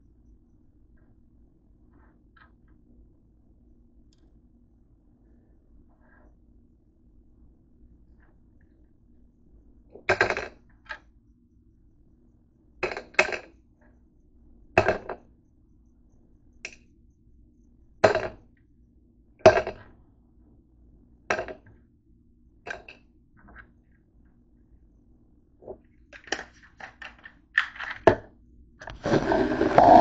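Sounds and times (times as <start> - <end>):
tablets clicking on wooden table: 10.1 - 10.6, 26.2 - 28.2.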